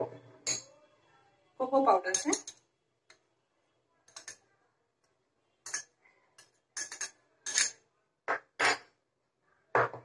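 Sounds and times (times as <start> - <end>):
metal spoon clinking on glass: 0.4 - 0.8, 2.1 - 2.6, 4.1 - 4.4, 5.6 - 7.8.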